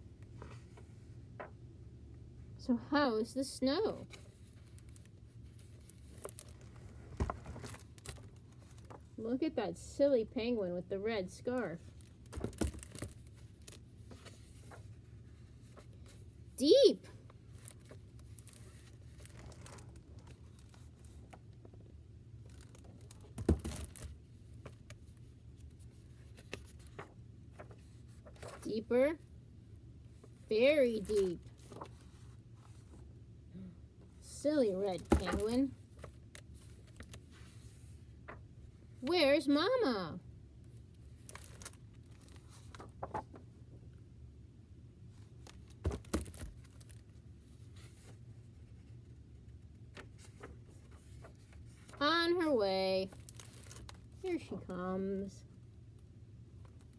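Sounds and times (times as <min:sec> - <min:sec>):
low room hum: 0:00.0 - 0:56.9
book page turning: 0:04.0 - 0:09.1, 0:11.7 - 0:16.3, 0:17.2 - 0:28.9, 0:30.2 - 0:33.1, 0:34.9 - 0:38.5, 0:41.0 - 0:43.5, 0:45.1 - 0:52.1, 0:53.1 - 0:54.2
paper rustles and taps: 0:12.0 - 0:14.9, 0:17.6 - 0:28.7, 0:35.0 - 0:37.2, 0:41.2 - 0:43.5, 0:45.4 - 0:47.0.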